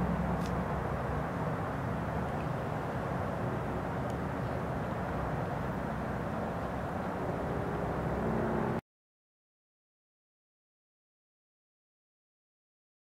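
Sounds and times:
distant traffic rumble: 0:00.0 - 0:08.8.

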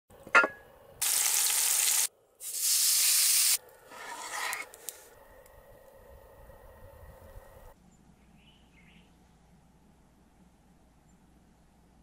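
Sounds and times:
steak sizzling in a pan: 0:01.0 - 0:03.6.

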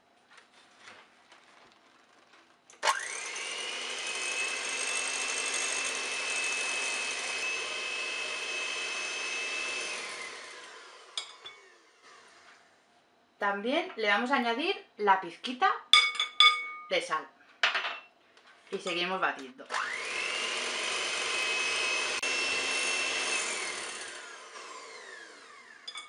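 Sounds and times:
electric hand mixer whining: 0:02.8 - 0:12.8, 0:19.7 - 0:26.0.

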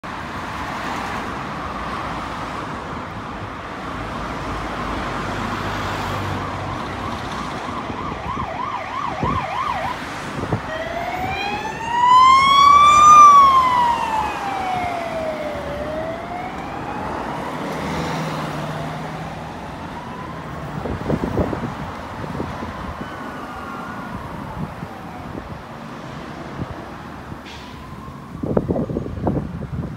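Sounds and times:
city traffic: 0:00.0 - 0:29.9
police siren wailing: 0:06.4 - 0:25.9, 0:27.6 - 0:29.4.

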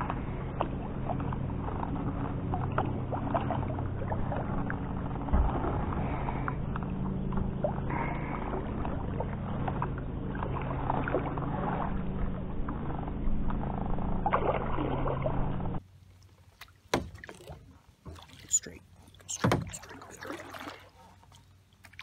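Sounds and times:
low steady hum: 0:00.0 - 0:22.0
paddle strokes in water: 0:00.0 - 0:22.0
dull thump: 0:16.9 - 0:17.4, 0:19.4 - 0:19.8.

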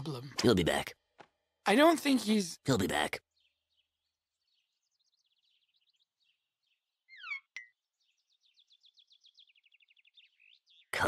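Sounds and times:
bird trill: 0:02.9 - 0:11.0
faint bird chirps: 0:02.9 - 0:11.0.

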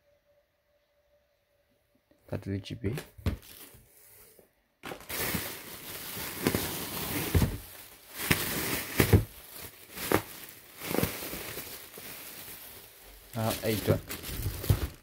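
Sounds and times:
plastic air pillows crinkling: 0:04.8 - 0:15.0.

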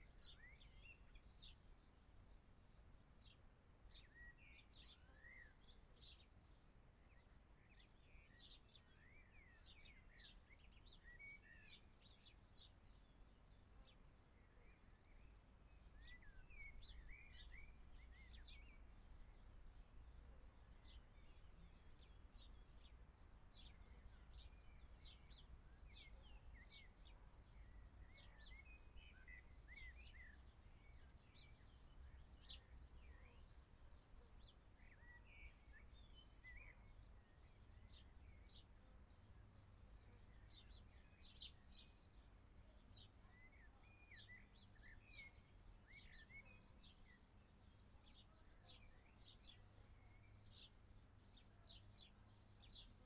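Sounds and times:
low background noise: 0:00.0 - 0:53.0
small birds chirping: 0:00.0 - 0:53.0.

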